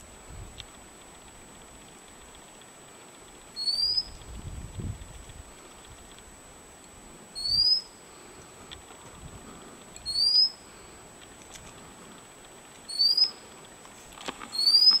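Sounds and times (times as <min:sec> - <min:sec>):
bird calling thin rising whistle: 0:03.6 - 0:04.1, 0:07.4 - 0:07.9, 0:10.0 - 0:10.6, 0:12.9 - 0:13.4, 0:14.5 - 0:15.0.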